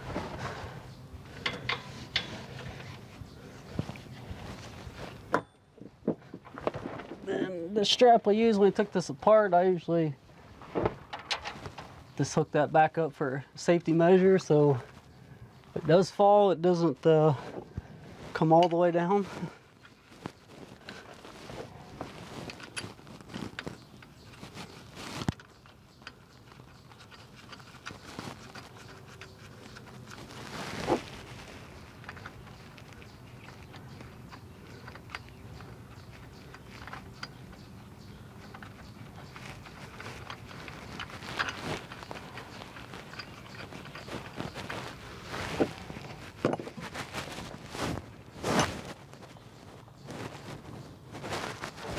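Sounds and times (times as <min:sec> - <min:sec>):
metal clicks and knocks: 0:01.4 - 0:02.9, 0:10.8 - 0:11.9.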